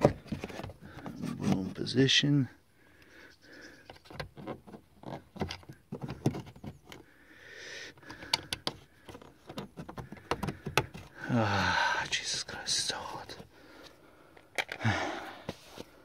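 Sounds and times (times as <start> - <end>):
plastic trim clicks and knocks: 8.1 - 11.0.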